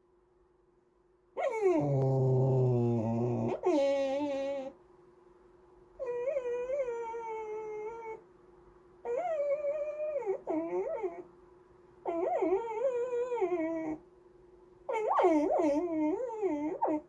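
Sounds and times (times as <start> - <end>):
puppy whining: 1.4 - 4.8, 6.0 - 8.2, 9.0 - 11.3, 12.0 - 14.0, 14.9 - 17.0.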